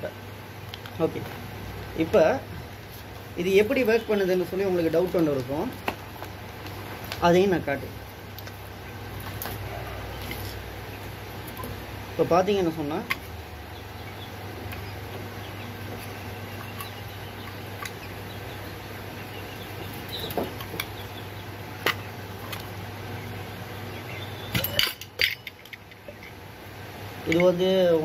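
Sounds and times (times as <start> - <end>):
metal parts clinking: 24.6 - 26.0.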